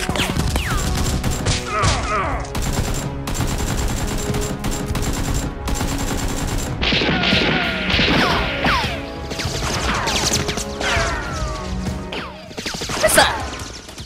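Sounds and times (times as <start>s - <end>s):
automatic gunfire: 0.0s - 1.7s, 2.6s - 8.4s
background music: 0.0s - 14.0s.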